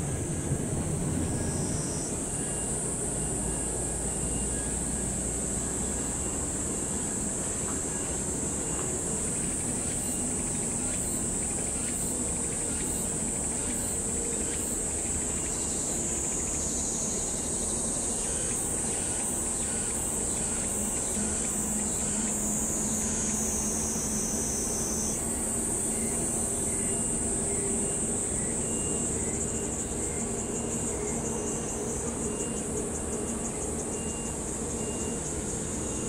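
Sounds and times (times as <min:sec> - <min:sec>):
jet engines idling rumble: 0:00.0 - 0:15.4
high-pitched insect chorus: 0:00.1 - 0:36.0.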